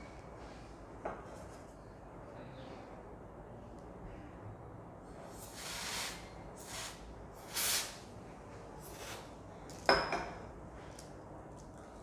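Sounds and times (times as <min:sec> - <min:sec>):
aerosol spray can hissing: 0:05.4 - 0:08.0.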